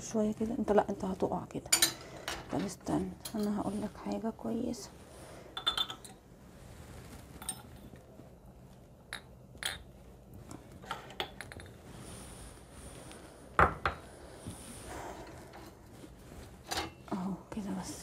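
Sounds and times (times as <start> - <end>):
dishes and cups clinking: 1.7 - 3.6, 5.5 - 6.2, 7.4 - 7.8, 9.1 - 10.0, 10.8 - 11.8.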